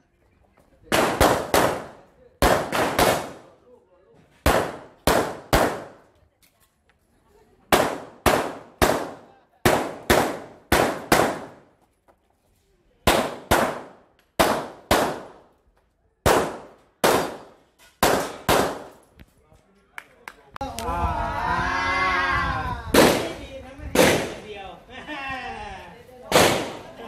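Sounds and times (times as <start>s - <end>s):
handgun shots: 26.3s - 26.8s.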